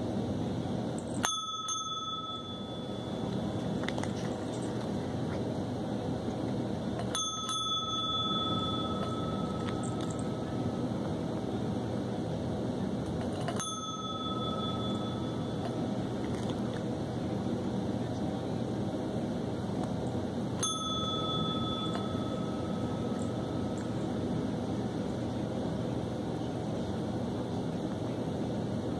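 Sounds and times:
desk call bell dinging: 1.0 - 3.8, 7.0 - 10.8, 13.4 - 16.0, 20.6 - 24.0.

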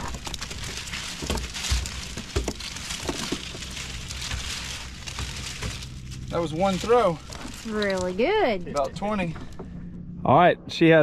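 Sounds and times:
dull thumps: 0.0 - 8.6
shrimp flipping on boat deck: 0.0 - 9.6.

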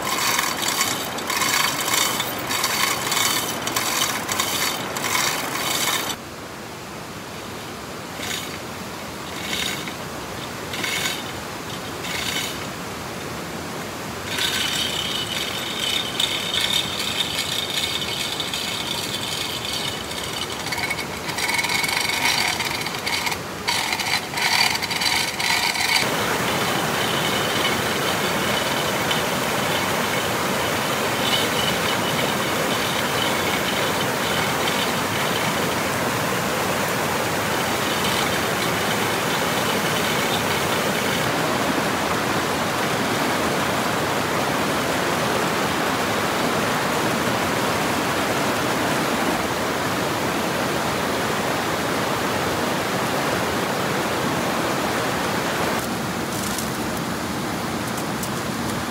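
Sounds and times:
hand tools scraping wood: 0.0 - 6.2, 8.2 - 12.9, 14.2 - 42.2.

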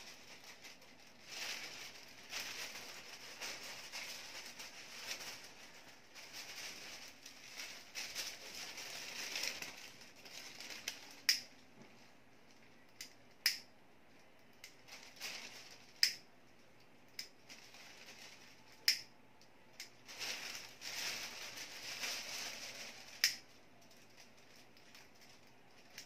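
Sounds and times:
paper rustling and crinkling: 0.0 - 12.1, 14.8 - 16.0, 17.4 - 18.8, 20.0 - 26.0.

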